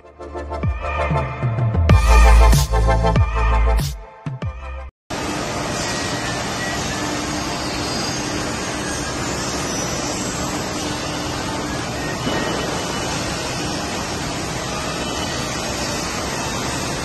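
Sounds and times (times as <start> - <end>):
factory machinery noise: 5.1 - 17.0.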